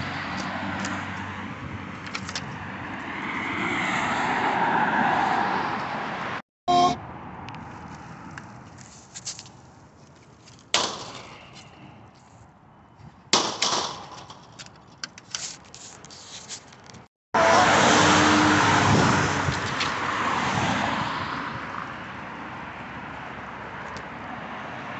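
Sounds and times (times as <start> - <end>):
car passing: 0.0 - 6.4, 17.4 - 24.9.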